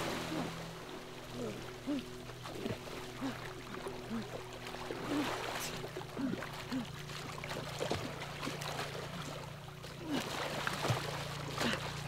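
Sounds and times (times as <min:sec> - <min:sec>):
low steady drone: 0:00.0 - 0:12.0
water sloshing and splashing: 0:00.0 - 0:12.0.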